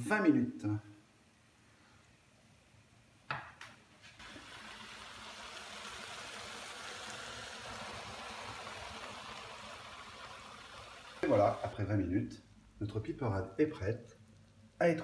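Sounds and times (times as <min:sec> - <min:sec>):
vegetables sizzling in frying pan: 0:04.2 - 0:11.9.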